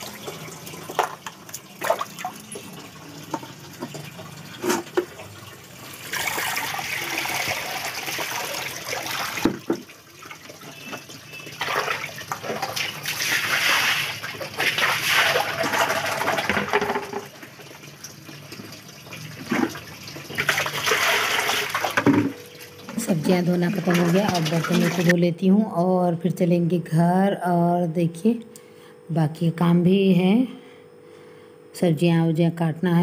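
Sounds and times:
water sloshing in plastic basin: 10.6s - 17.3s, 19.4s - 25.2s.

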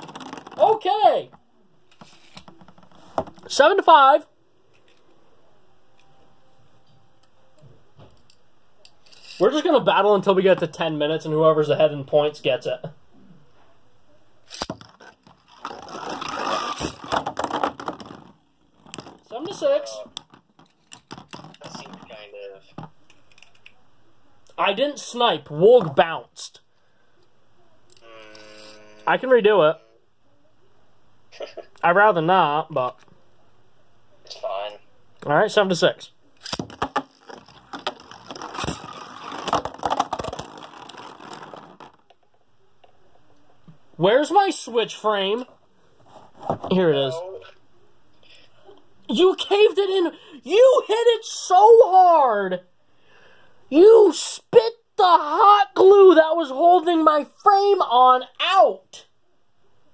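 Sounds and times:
rattling whir of spinning tops: 14.6s - 18.3s, 36.6s - 42.1s.

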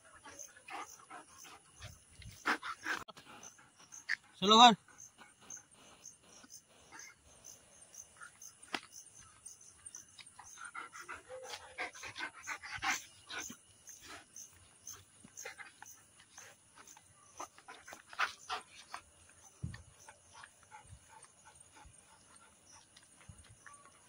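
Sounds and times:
dog panting: 0.0s - 24.0s.

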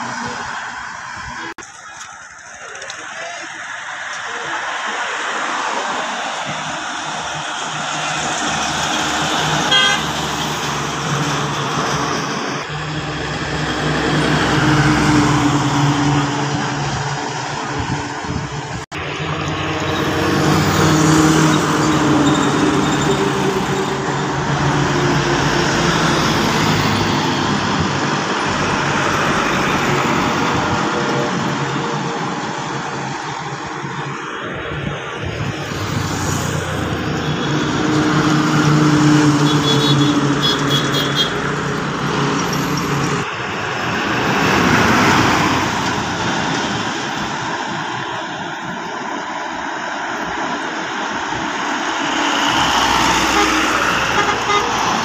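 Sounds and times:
bus passing: 0.0s - 55.0s
trucks passing: 0.0s - 55.0s.

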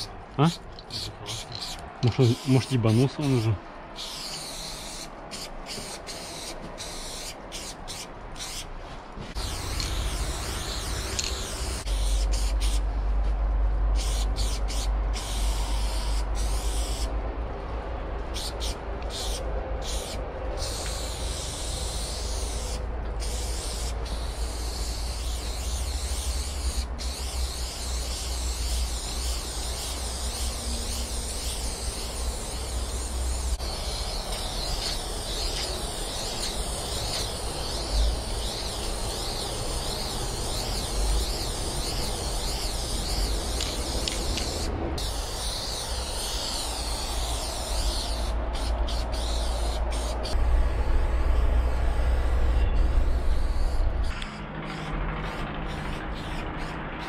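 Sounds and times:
spray-paint can hissing: 0.0s - 8.7s, 9.3s - 12.9s, 14.0s - 17.1s, 18.3s - 56.8s
low rumble: 50.4s - 54.1s.

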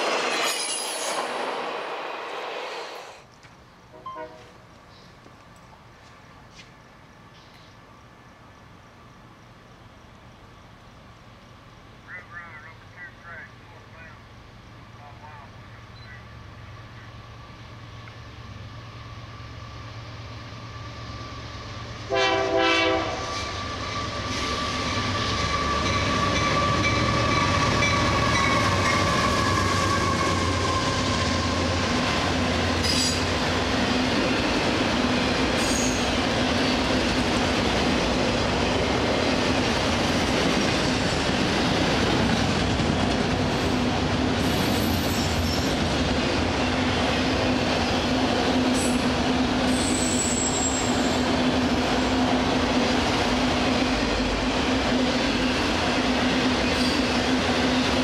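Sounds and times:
train wheels on rails: 0.0s - 11.8s, 16.3s - 58.0s
rumble of train cars rolling past: 0.0s - 58.0s
locomotive horn blast: 4.0s - 4.6s, 22.1s - 23.4s.

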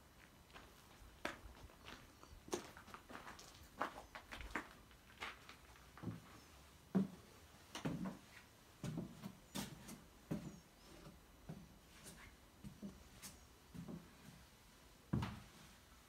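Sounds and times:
footsteps on wooden floor: 6.0s - 14.4s.

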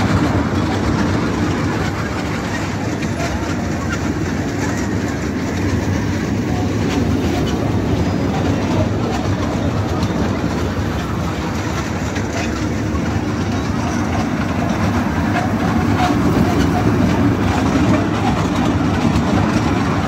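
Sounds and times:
crowd murmur: 0.0s - 20.0s
low machinery rumble: 0.0s - 20.0s.

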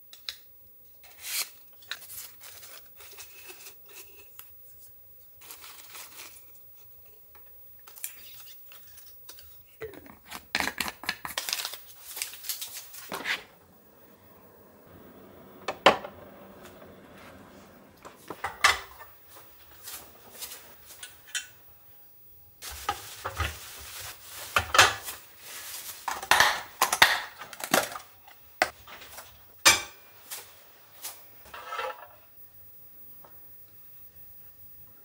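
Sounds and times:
paper towel rustling on pan: 7.9s - 14.2s, 16.2s - 21.2s, 22.6s - 26.5s
kitchenware clinking and knocking: 15.2s - 19.2s.

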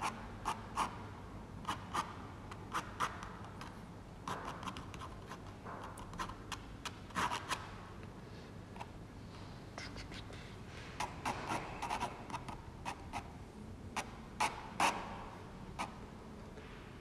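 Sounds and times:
pen scratching on paper: 7.1s - 7.6s, 11.0s - 13.3s.

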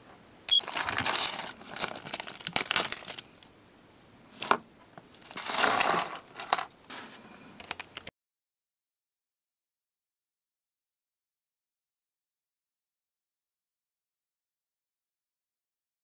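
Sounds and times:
small metal parts clinking: 0.6s - 3.2s, 5.2s - 6.7s
plastic bag crinkling: 0.6s - 3.4s.

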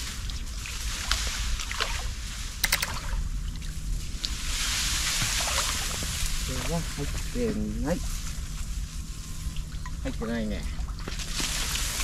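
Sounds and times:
water sloshing and splashing: 0.0s - 6.5s
trap clicks: 2.6s - 3.1s.

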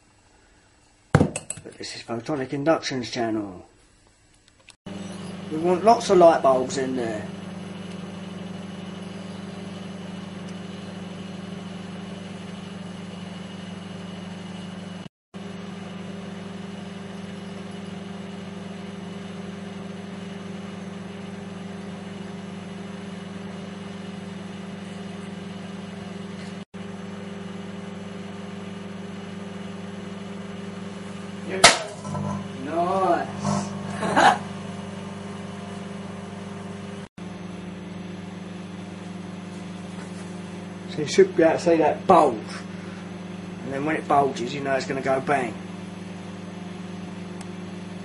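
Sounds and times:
microwave oven hum: 0.0s - 48.0s
sharp crack: 31.6s - 32.0s.

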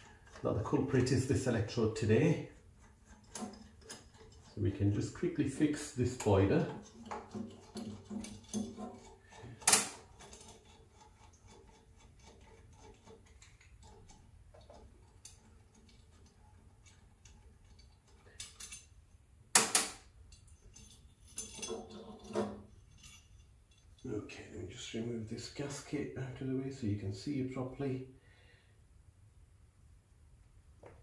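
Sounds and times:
metallic clicks of screwdriver and screws: 2.8s - 4.6s, 6.8s - 18.9s.

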